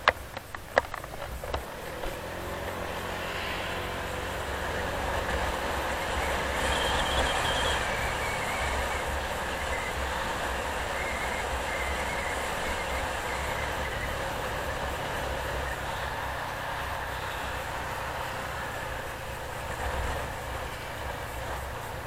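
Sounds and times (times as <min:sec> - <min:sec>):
tyre and wind noise: 0:00.0 - 0:02.4
faint high squeal: 0:05.9 - 0:17.7.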